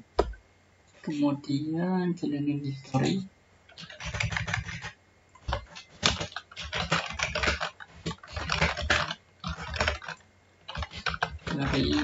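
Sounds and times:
computer keyboard typing: 3.7 - 12.0.

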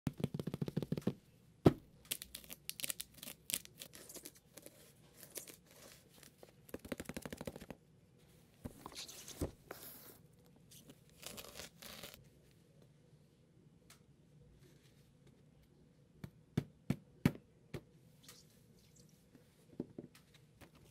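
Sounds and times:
plastic wrap crinkling and tearing: 2.1 - 4.6.

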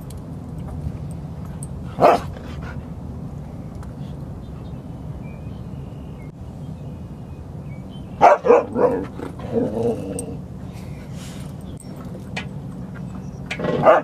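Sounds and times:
dog barking: 2.0 - 2.3, 8.2 - 9.1, 13.7 - 14.0.

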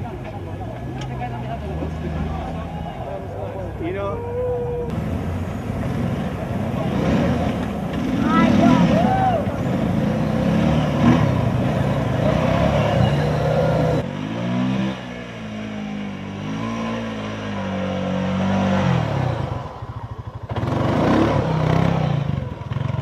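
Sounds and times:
vehicle engine revving: 4.9 - 23.0.

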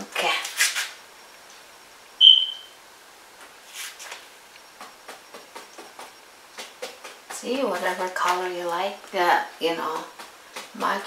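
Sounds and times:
high-pitched chirp: 2.2 - 2.8.

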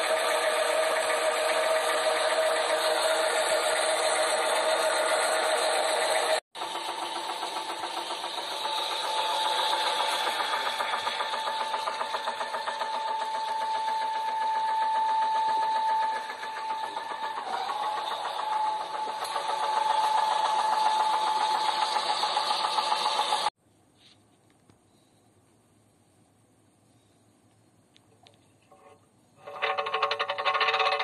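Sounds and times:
engine pulsing with high whine: 0.0 - 23.5.

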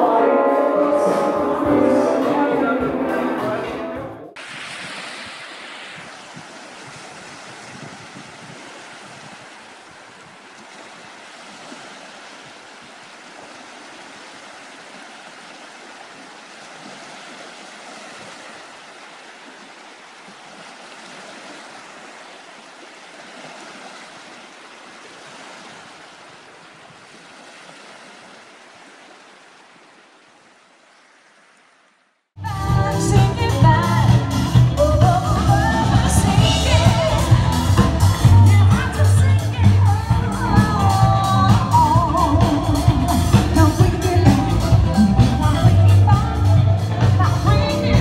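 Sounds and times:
small waves lapping on shore: 4.4 - 32.4.

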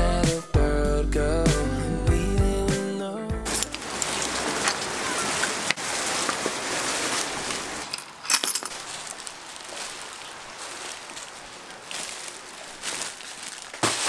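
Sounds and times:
metal keys jingling: 3.5 - 3.8, 7.9 - 9.0
steady rain hiss: 3.5 - 14.0.

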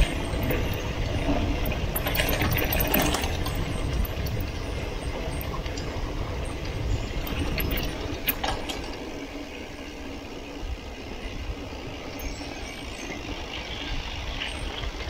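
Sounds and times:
bike clicks and rattles: 0.0 - 15.0
wind rumbling on microphone: 0.0 - 15.0.

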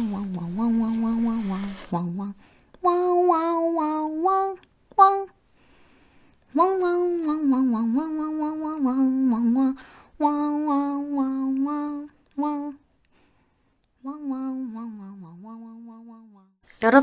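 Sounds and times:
woman humming: 6.5 - 12.8, 14.0 - 16.6.

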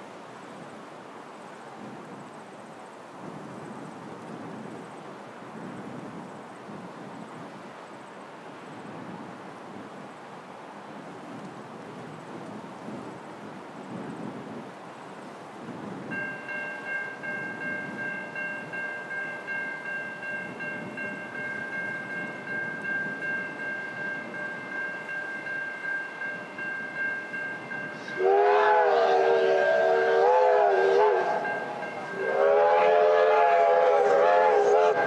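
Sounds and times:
steam locomotive exhaust beats: 15.7 - 35.0
steam whistles: 27.7 - 35.0.

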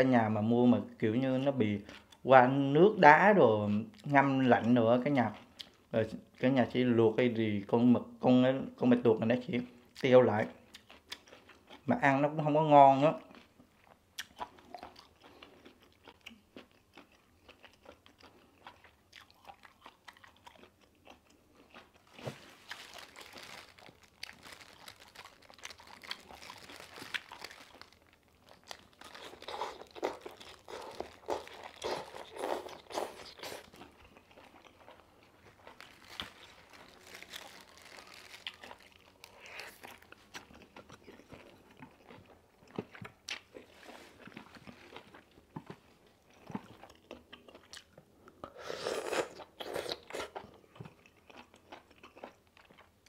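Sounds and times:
person chewing crunchy food: 10.6 - 11.9, 13.2 - 53.0.

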